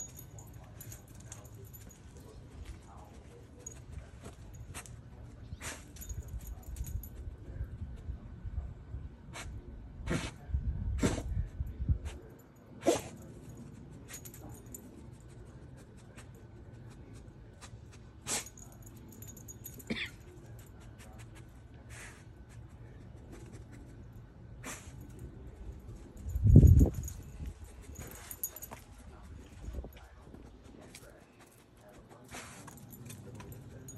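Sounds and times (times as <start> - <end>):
dog sniffing in dirt: 2.6 - 6.0, 9.3 - 10.4, 11.0 - 11.4, 15.2 - 18.6, 20.8 - 24.0, 24.6 - 25.1, 30.6 - 33.3.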